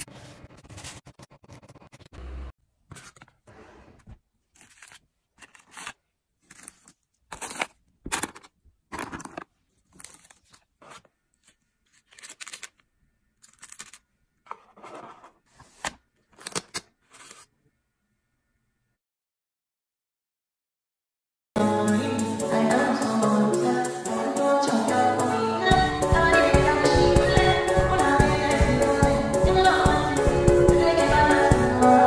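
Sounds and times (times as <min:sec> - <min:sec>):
packaging handled by hand: 0:04.5 - 0:17.5.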